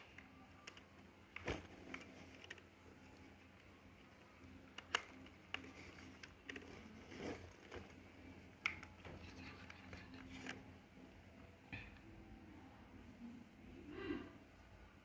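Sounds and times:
plastic clicks of camera handling: 4.7 - 6.6.

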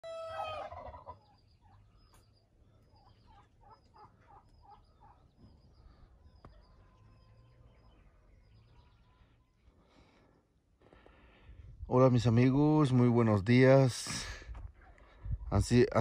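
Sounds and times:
rooster crowing: 0.0 - 1.0
fowl short calls: 0.0 - 1.2
small birds chirping: 0.7 - 16.0.

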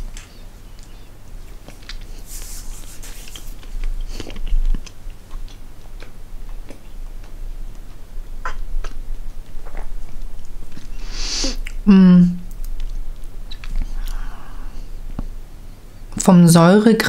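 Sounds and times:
person chewing gummy candies: 3.6 - 11.9, 12.5 - 14.3.

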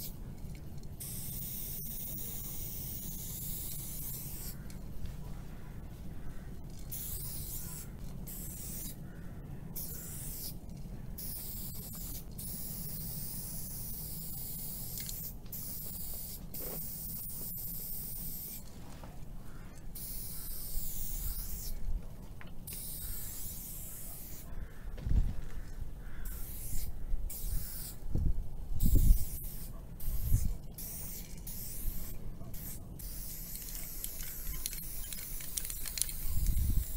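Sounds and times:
aerosol spray can hissing: 1.0 - 4.6, 6.9 - 9.0, 9.8 - 10.6, 11.2 - 18.6, 20.0 - 21.8, 22.7 - 24.5, 26.3 - 28.0, 28.8 - 36.9.

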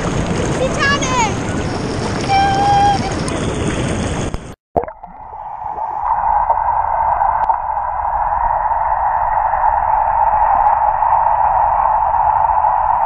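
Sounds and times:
churning bubbling pool water: 0.0 - 4.2, 4.8 - 7.7
muffled underwater water rush: 0.0 - 13.0.

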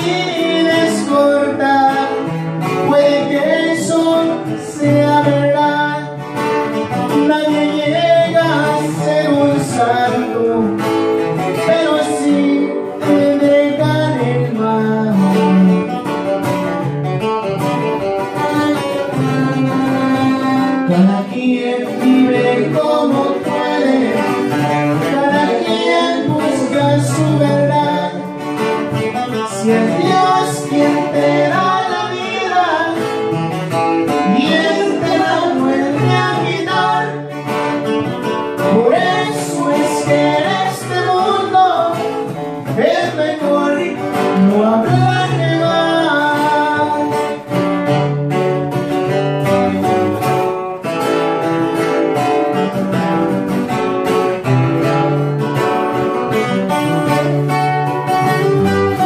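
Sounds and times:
man singing: 0.0 - 16.0, 18.4 - 48.0
acoustic guitars playing: 0.0 - 59.0.

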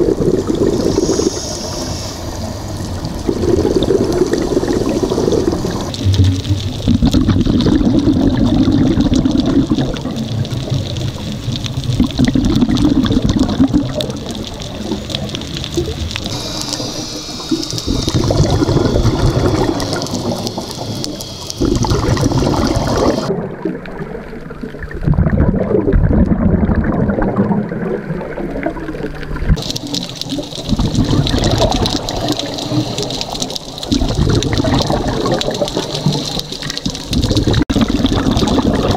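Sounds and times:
bubbles rushing: 0.0 - 38.9
diver breathing through regulator: 0.4 - 5.9.

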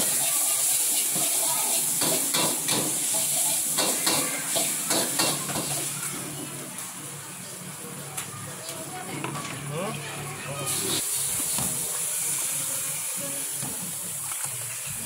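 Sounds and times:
noodles sizzling in a wok: 0.0 - 9.0, 10.0 - 15.0.

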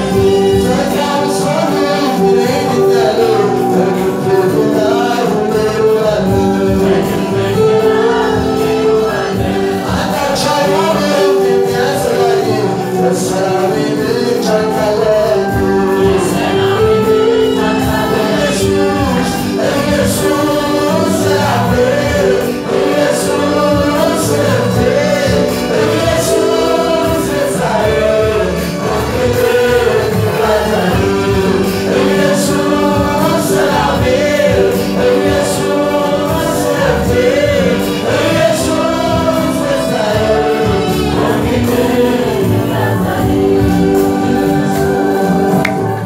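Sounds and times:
accompanying chords: 0.0 - 46.0
choir singing gospel song: 0.0 - 46.0
lead singer on microphone: 0.0 - 46.0.

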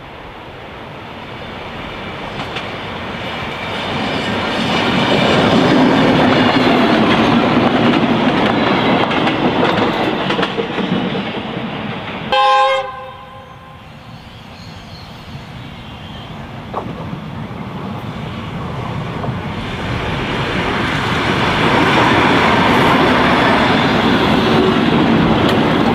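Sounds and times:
railcar engine and wheels passing: 0.0 - 25.9
train horn blast: 12.3 - 14.0.

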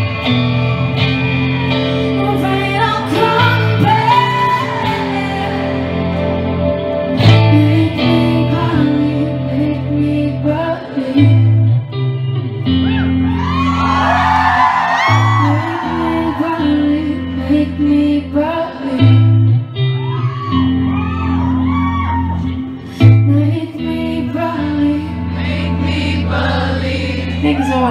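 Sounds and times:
electric guitar: 0.0 - 27.9
female lead vocal: 2.0 - 11.9, 14.6 - 20.0, 22.3 - 27.9
audience singing along: 14.4 - 19.2, 24.3 - 27.7.

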